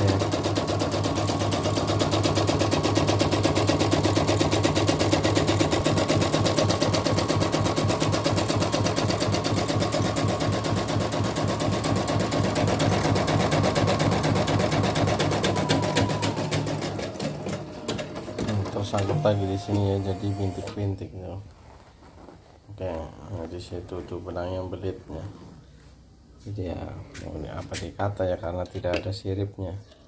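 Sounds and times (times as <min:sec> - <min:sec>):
embroidery machine stitching: 0:00.0 - 0:20.9
motor hum: 0:00.0 - 0:20.9.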